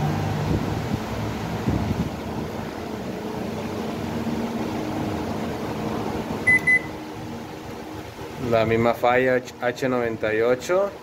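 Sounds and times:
microwave oven humming: 0:02.6 - 0:09.8
short beeps: 0:06.5 - 0:07.0.

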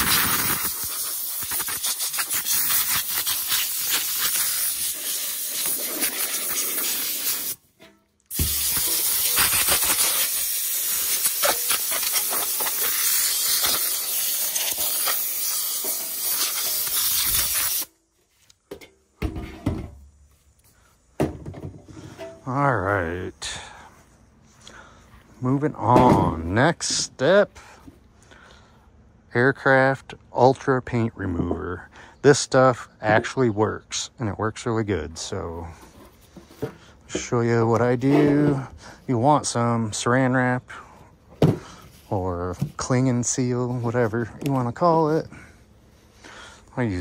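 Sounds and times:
compressed air blow gun hissing: 0:00.0 - 0:07.7, 0:08.3 - 0:17.9.

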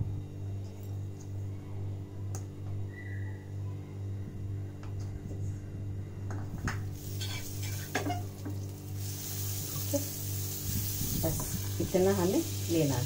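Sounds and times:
butter sizzling in pan: 0:07.0 - 0:13.0.

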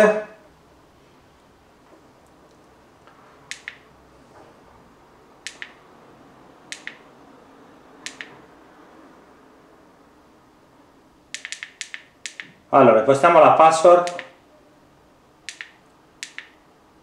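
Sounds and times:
remote control button clicks: 0:03.5 - 0:03.9, 0:05.4 - 0:05.8, 0:06.7 - 0:07.0, 0:08.1 - 0:08.4, 0:11.4 - 0:12.6, 0:14.1 - 0:14.4, 0:15.5 - 0:16.6.

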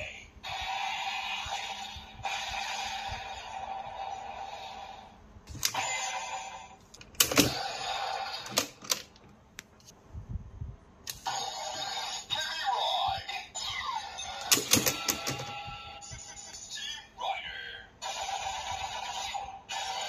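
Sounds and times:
toy electronic sound effects: 0:05.7 - 0:08.6, 0:11.1 - 0:20.0.

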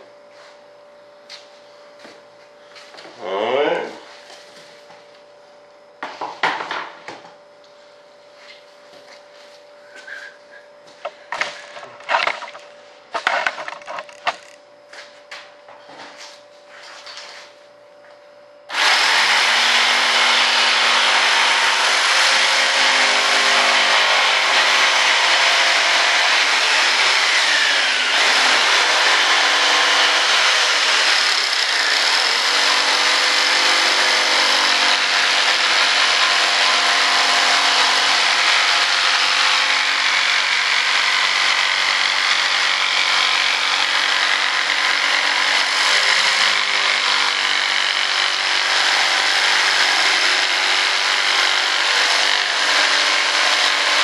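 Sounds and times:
jigsaw cutting wooden board: 0:11.4 - 0:12.6, 0:18.7 - 0:54.0.

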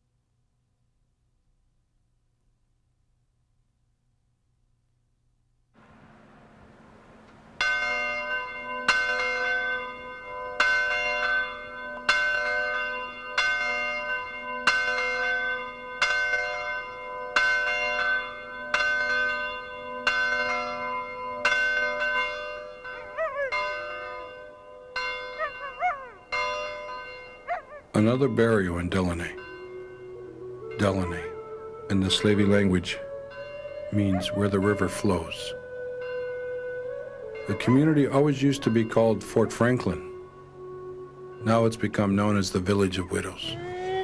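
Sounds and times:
church bell tolling: 0:07.5 - 0:44.0
dog howling: 0:23.1 - 0:23.8, 0:25.3 - 0:26.3, 0:27.5 - 0:28.0, 0:29.4 - 0:38.3, 0:43.0 - 0:44.0.

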